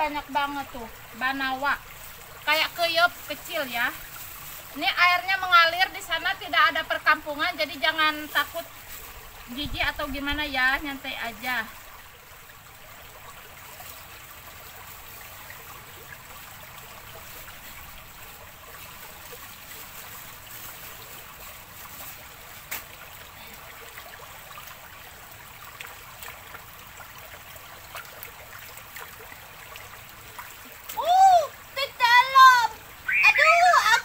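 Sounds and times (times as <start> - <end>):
stream trickling: 0.0 - 34.0
small splashes in water: 11.4 - 31.8.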